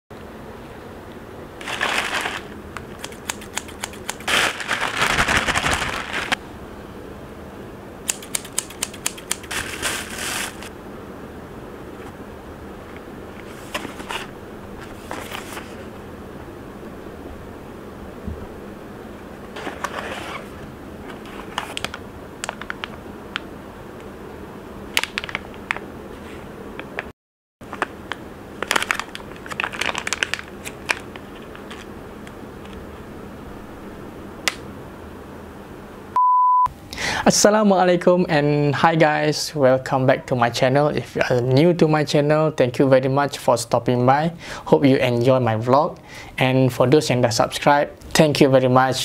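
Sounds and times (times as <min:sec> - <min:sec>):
steady background hum: 0:00.1 - 0:49.0
plastic bag rustling and crinkling: 0:01.6 - 0:02.6, 0:04.2 - 0:06.4, 0:09.4 - 0:10.7, 0:13.5 - 0:15.9, 0:27.6 - 0:31.9.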